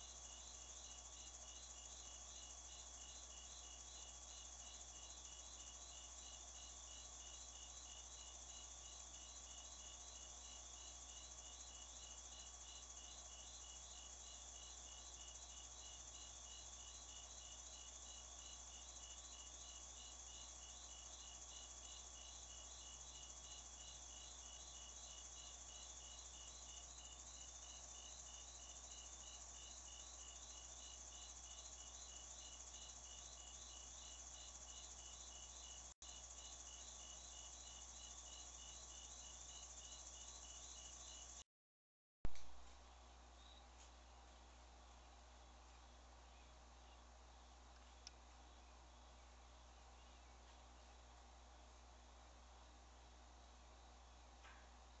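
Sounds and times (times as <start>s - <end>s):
crickets chirping: 0.0s - 41.4s.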